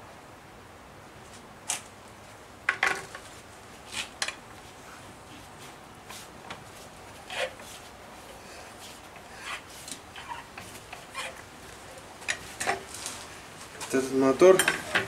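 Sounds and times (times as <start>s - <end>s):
metal clinks and clanks: 14.5s - 15.0s.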